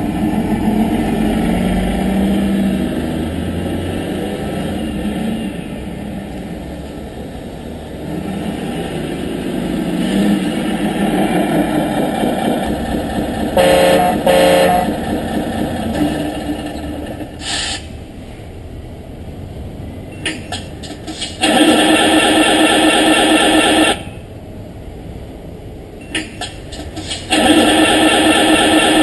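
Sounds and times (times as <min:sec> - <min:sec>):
simulated diesel bus engine: 0:00.0 - 0:29.0
short horn blasts: 0:13.6 - 0:15.0.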